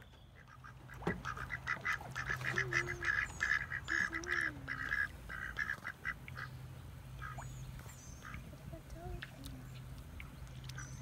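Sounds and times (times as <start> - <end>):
ducks quacking: 0.3 - 7.5.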